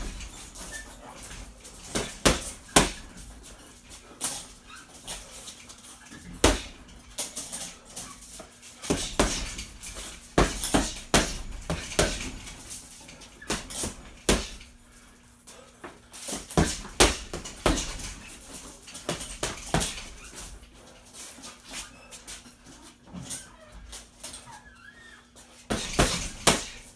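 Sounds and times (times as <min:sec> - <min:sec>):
punches thudding on heavy bag: 0:00.0 - 0:03.2, 0:06.2 - 0:06.8, 0:08.8 - 0:12.6, 0:13.5 - 0:14.7, 0:16.3 - 0:18.4, 0:19.1 - 0:20.2, 0:25.7 - 0:26.9.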